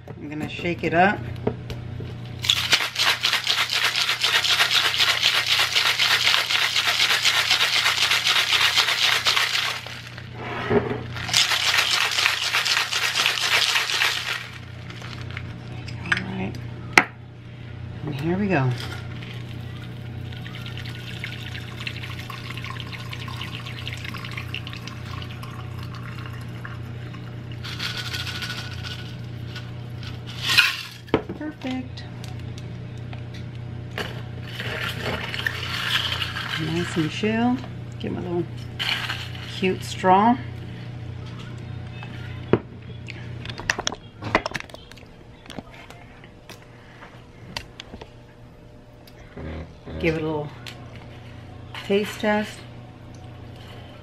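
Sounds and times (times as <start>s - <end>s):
liquid pouring into glass: 19.8s - 27.6s.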